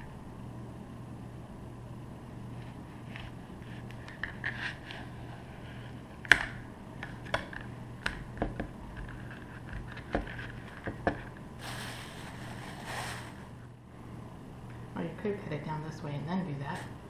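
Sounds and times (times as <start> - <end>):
steady low hum: 0.0 - 17.0
soft rustle: 11.6 - 13.5.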